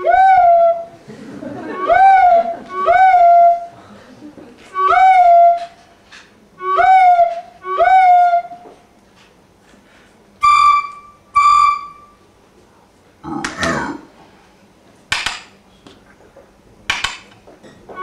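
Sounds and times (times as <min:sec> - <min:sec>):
recorder playing detached notes: 0:00.0 - 0:03.7, 0:04.7 - 0:05.8, 0:06.6 - 0:08.8, 0:10.4 - 0:12.2.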